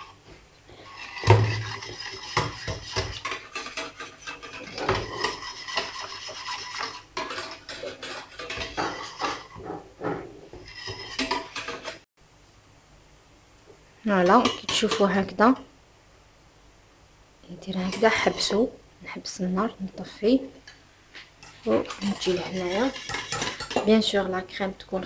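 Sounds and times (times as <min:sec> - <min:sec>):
whisk rattling in saucepan: 0:00.9 - 0:09.6, 0:10.6 - 0:12.0, 0:21.4 - 0:23.9.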